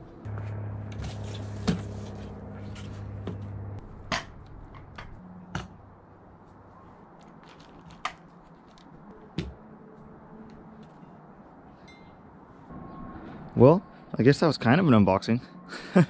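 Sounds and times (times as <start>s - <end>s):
low hum: 0.0s - 7.4s.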